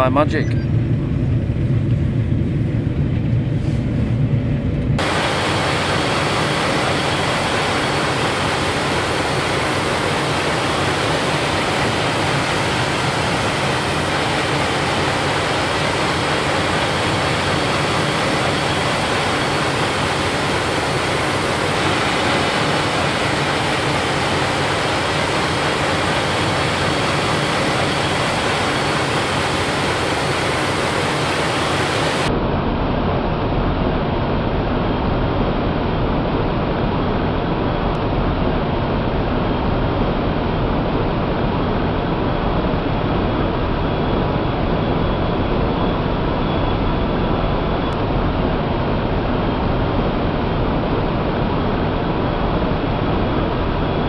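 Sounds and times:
low engine rumble: 0.0 - 32.5
drone propellers whining: 0.0 - 32.8.

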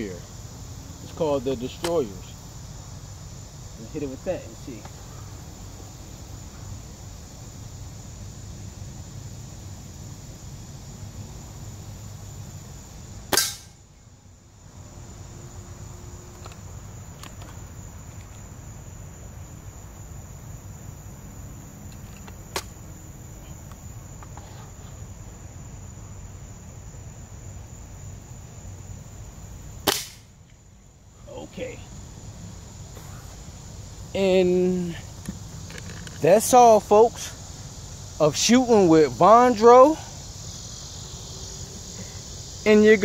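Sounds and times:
air rifle shot crack: 13.3 - 13.8, 29.8 - 30.3.

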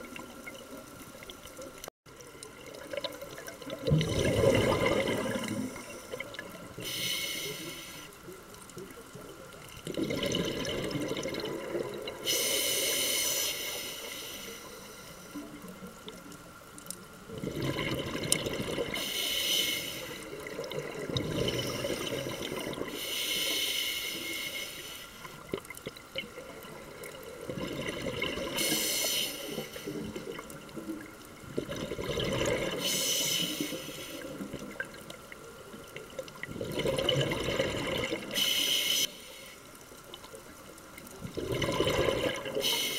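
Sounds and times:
exhaled bubbles underwater: 0.0 - 7.0, 8.6 - 12.5, 17.2 - 19.2, 20.2 - 23.0, 25.3 - 38.4, 40.2 - 42.9
regulator inhalation hiss: 6.8 - 8.3, 12.2 - 15.5, 19.0 - 20.4, 21.5 - 25.4, 28.6 - 30.2, 32.8 - 34.4, 38.3 - 39.7, 42.6 - 42.9.

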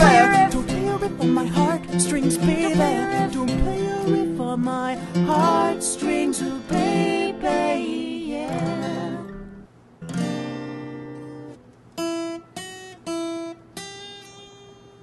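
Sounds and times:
acoustic guitars strumming: 0.0 - 15.0.

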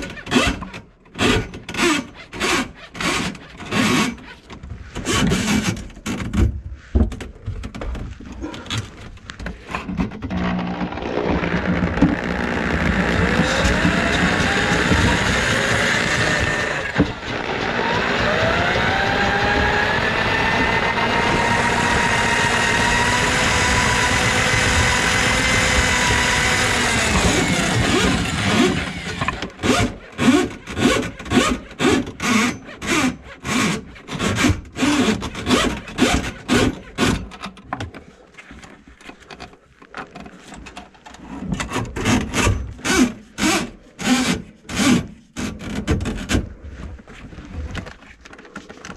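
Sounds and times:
drain auger motor whine: 10.2 - 30.8.

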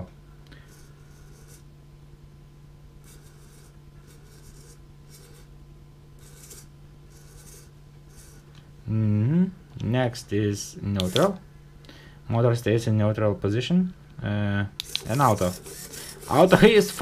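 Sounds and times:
steady low hum: 0.0 - 17.0
servo motor whirring: 3.0 - 5.5, 6.2 - 8.5, 11.0 - 11.4, 14.8 - 17.0.

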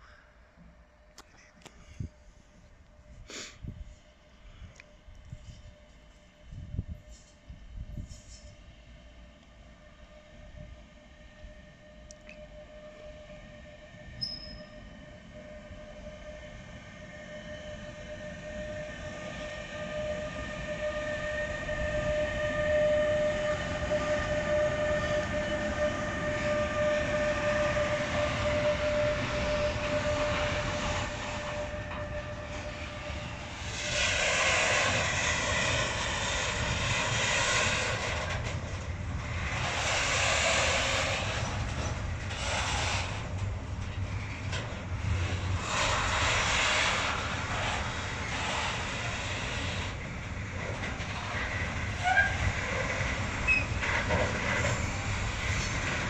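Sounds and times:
locomotive whine: 0.0 - 56.0
rolling wheel noise: 26.5 - 56.0.

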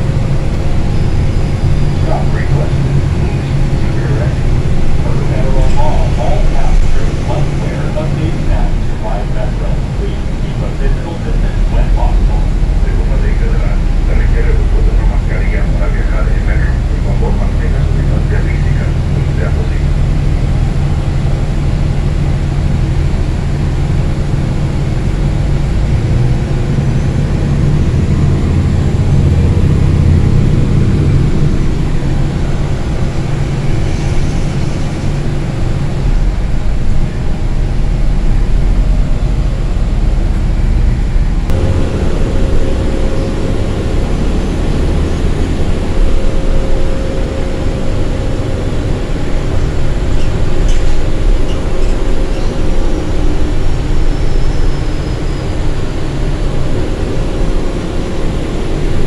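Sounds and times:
bus engine rumbling: 0.0 - 59.0
road noise: 0.0 - 59.0
steady whine: 0.0 - 59.0.

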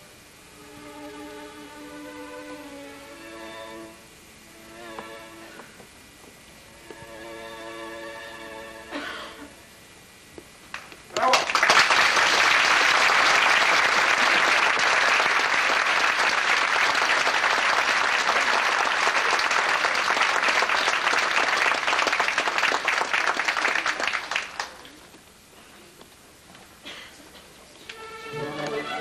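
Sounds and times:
audience applauding: 10.7 - 25.0.

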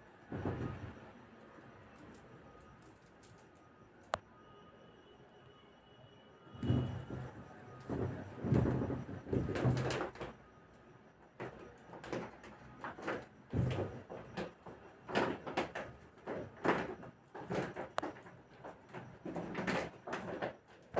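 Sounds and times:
soft bumps: 6.6 - 9.8.

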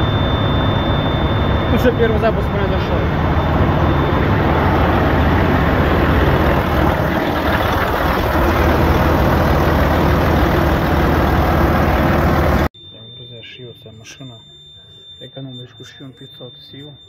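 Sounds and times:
diesel engine running: 0.0 - 12.7.

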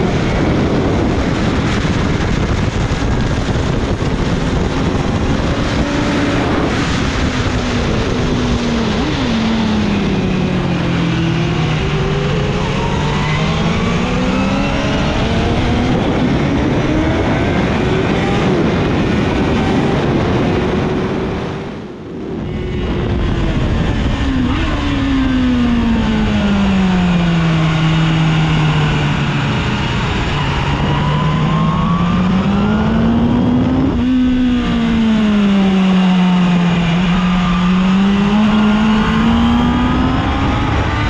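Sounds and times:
motorcycle engine revving: 0.0 - 41.0
wind rush: 0.0 - 41.0.

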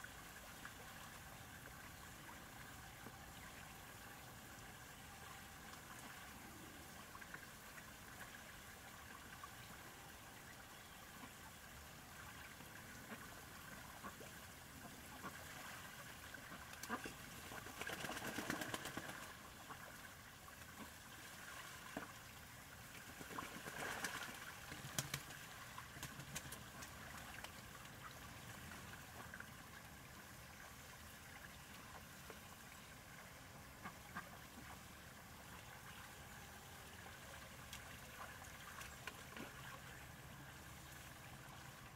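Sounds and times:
ducks splashing in water: 13.1 - 22.2, 22.8 - 29.4.

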